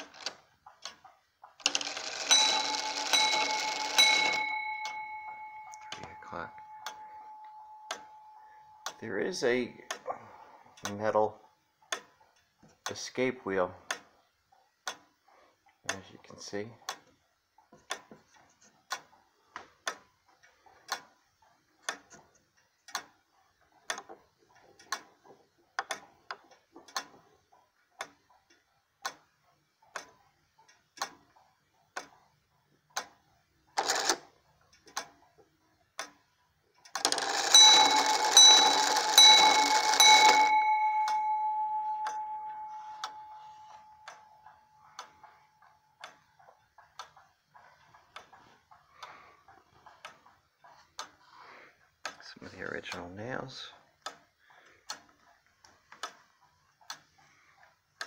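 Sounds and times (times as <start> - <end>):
clock ticking: 0.0 - 58.0
clock gears whirring: 1.6 - 8.1, 36.8 - 51.2
clock bell striking: 1.7 - 9.8, 37.1 - 44.7.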